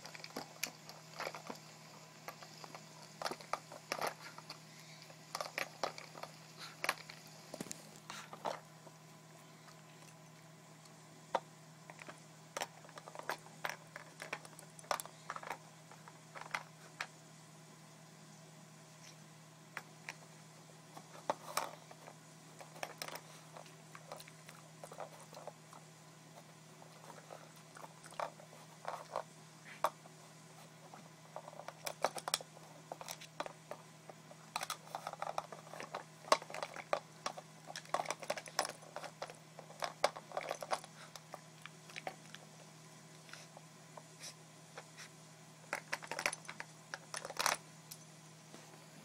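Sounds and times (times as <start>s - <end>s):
dog crunching food: 0.0s - 8.8s, 9.7s - 17.1s, 20.9s - 30.0s, 30.6s - 42.6s, 45.7s - 47.6s.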